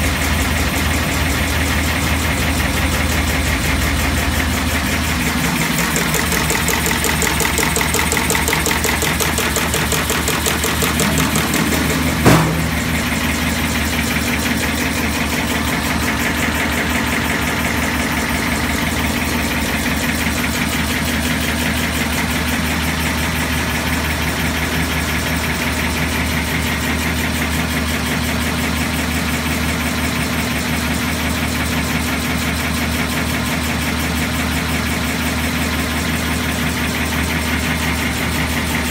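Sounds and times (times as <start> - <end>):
machine cycling rapidly: 4.8 - 14.6
sharp knock: 5.6 - 12.8.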